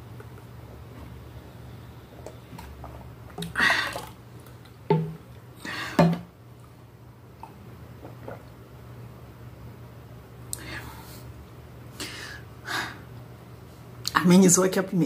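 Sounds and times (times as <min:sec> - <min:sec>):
person gulping a drink: 0:02.1 - 0:05.2, 0:07.4 - 0:08.7.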